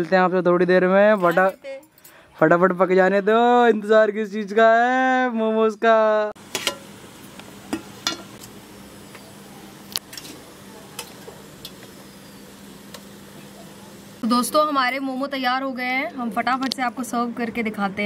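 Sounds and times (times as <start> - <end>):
steady hiss: 6.4 - 14.8
steel cookware clinking: 6.5 - 6.9, 7.7 - 8.4.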